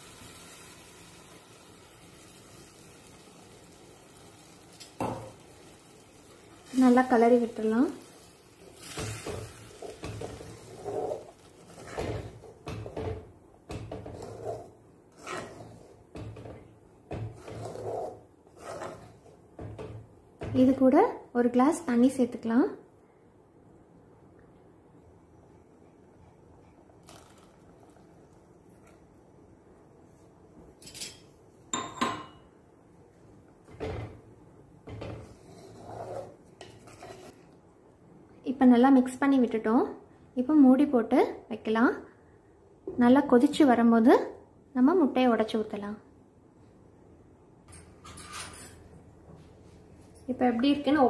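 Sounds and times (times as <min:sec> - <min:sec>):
wooden spatula scraping a clay pot: 0:08.8 - 0:13.0, 0:13.8 - 0:19.5, 0:35.2 - 0:37.5.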